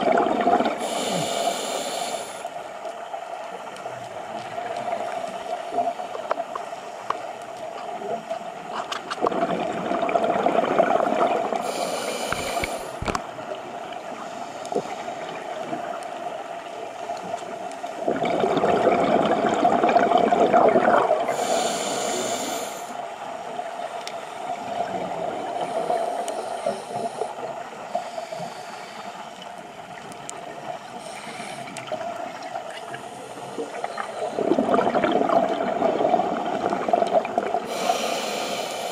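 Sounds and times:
gurgling exhaled bubbles: 0:00.0 - 0:01.4, 0:09.1 - 0:13.2, 0:18.0 - 0:22.4, 0:33.5 - 0:38.0
high hiss of inhalation: 0:00.8 - 0:02.5, 0:11.6 - 0:13.1, 0:21.3 - 0:23.0, 0:37.7 - 0:38.9.

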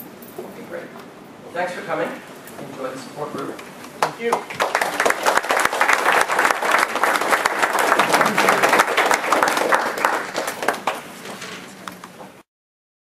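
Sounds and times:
audience applauding: 0:04.0 - 0:11.2.

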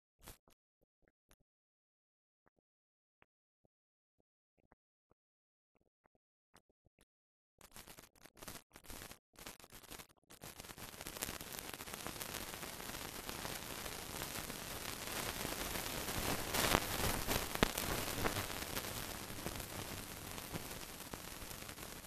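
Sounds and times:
film hiss with crackles: 0:07.7 - 0:22.0.

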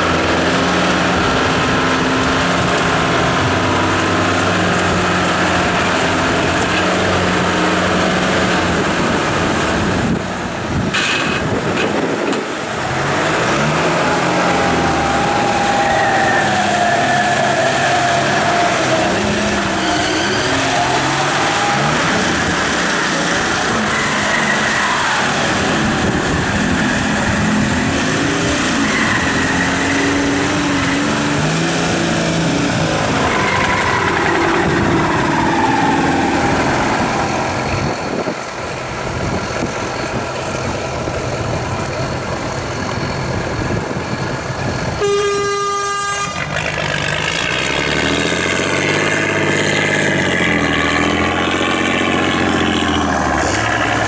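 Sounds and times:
off-road engines revving in mud: 0:00.0 - 0:54.0
horn blast: 0:45.0 - 0:46.8.

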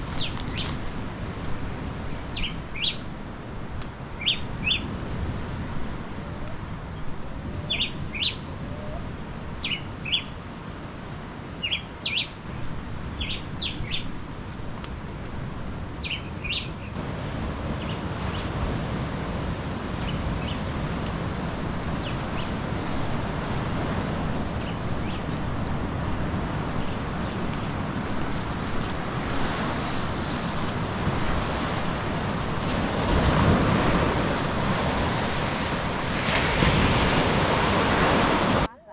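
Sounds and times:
wind: 0:00.0 - 0:38.9
small birds chirping: 0:00.1 - 0:00.8, 0:06.9 - 0:09.0, 0:09.6 - 0:17.0
surf rushing: 0:17.0 - 0:38.9.

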